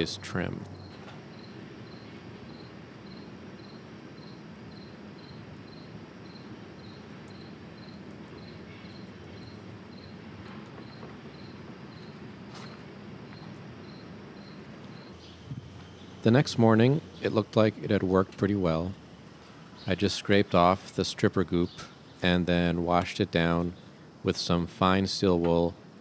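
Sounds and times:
steady low hum: 0:00.0 - 0:26.0
cricket chirping: 0:00.8 - 0:16.1.

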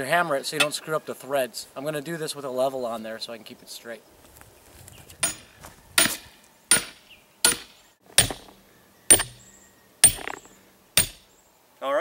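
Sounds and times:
hammer striking metal pipe cap: 0:09.1 - 0:09.4, 0:10.0 - 0:11.2.

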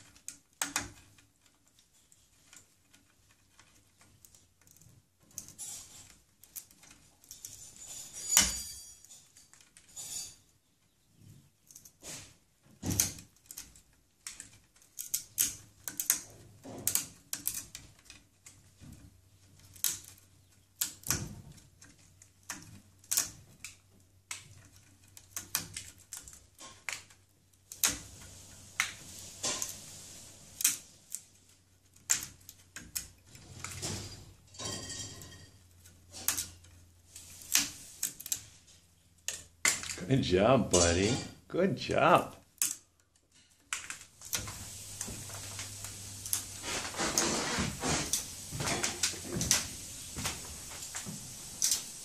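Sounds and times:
parrot chewing twigs: 0:11.8 - 0:41.1, 0:42.0 - 0:52.0.

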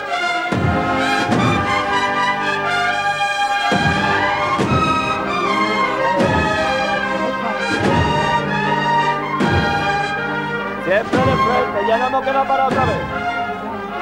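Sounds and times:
brass march melody: 0:00.0 - 0:14.0
heavy drum strokes: 0:03.6 - 0:10.2.

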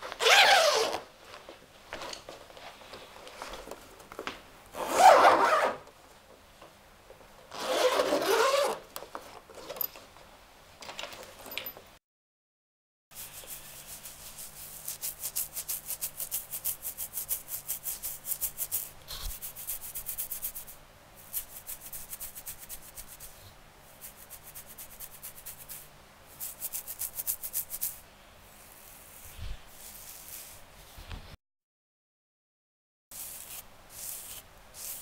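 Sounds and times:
fingernails scratching a beard: 0:13.2 - 0:20.7, 0:21.3 - 0:23.4, 0:26.4 - 0:30.6.

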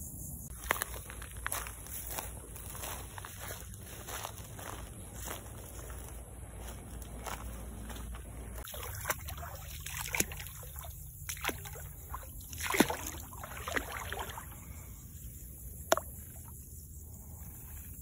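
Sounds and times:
feet splashing in shallow water: 0:00.6 - 0:14.6.

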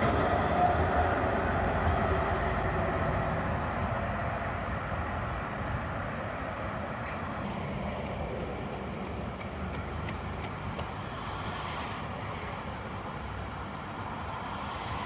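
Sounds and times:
street traffic noise: 0:00.0 - 0:15.0
tram rolling noise: 0:00.0 - 0:15.0.

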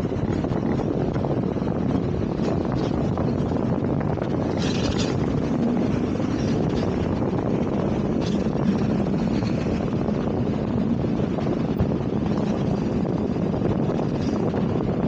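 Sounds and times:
tram rumbling along tracks: 0:00.0 - 0:15.0
wind on microphone: 0:00.0 - 0:15.0.

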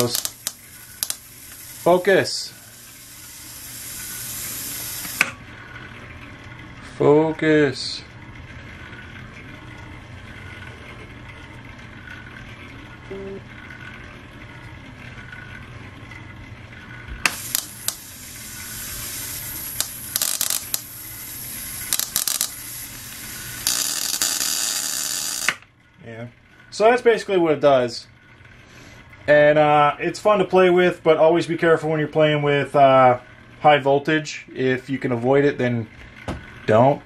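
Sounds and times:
electric arc hissing and crackling: 0:00.0 - 0:05.3, 0:17.2 - 0:25.6
low steady hum: 0:00.0 - 0:37.0.

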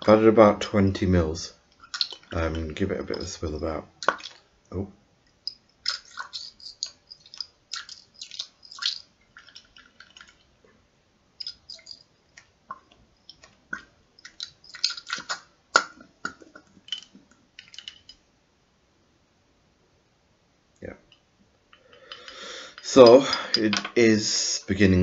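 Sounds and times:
liquid sloshing in glass container: 0:01.8 - 0:04.4, 0:05.5 - 0:10.6, 0:11.4 - 0:18.2.

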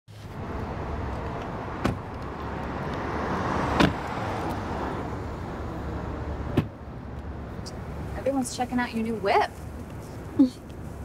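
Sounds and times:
car door shutting with a thud: 0:03.8 - 0:04.0, 0:06.5 - 0:06.8.

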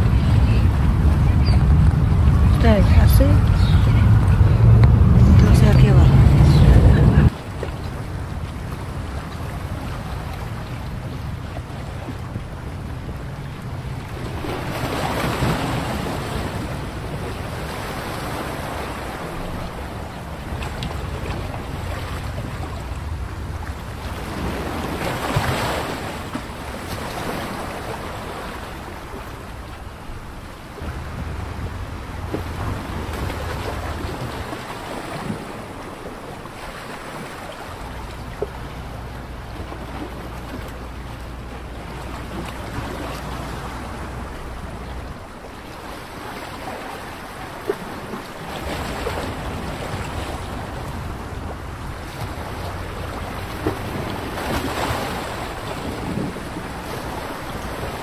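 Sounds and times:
wind blowing on microphone: 0:00.0 - 0:28.8, 0:48.0 - 0:58.0.

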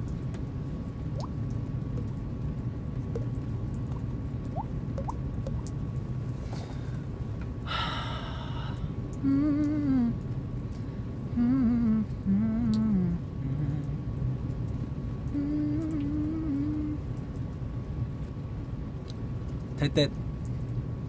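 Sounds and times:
mouth water-drop plips: 0:01.1 - 0:02.2, 0:03.1 - 0:05.8
breathy vocal sound: 0:07.7 - 0:10.2, 0:11.4 - 0:14.0.

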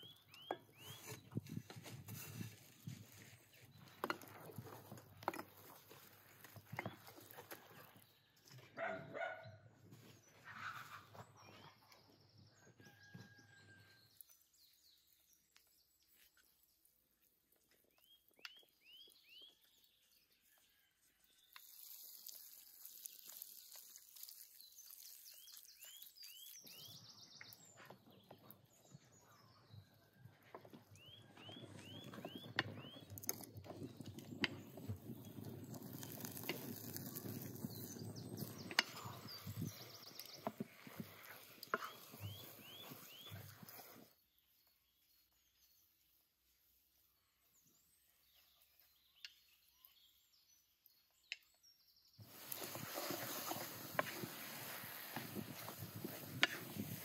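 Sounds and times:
small bird chirping: 0:00.0 - 0:01.6, 0:17.8 - 0:46.2, 0:47.0 - 0:57.0
wood fire crackling and popping: 0:31.2 - 0:43.8.

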